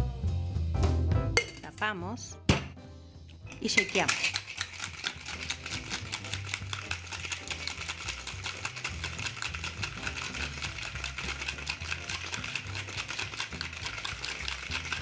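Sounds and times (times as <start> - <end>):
ice rattling in cocktail shaker: 3.5 - 15.0.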